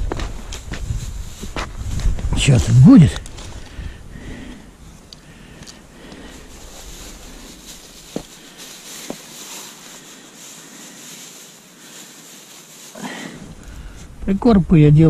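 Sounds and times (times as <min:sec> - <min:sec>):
wind hiss on microphone: 0:00.0 - 0:05.0.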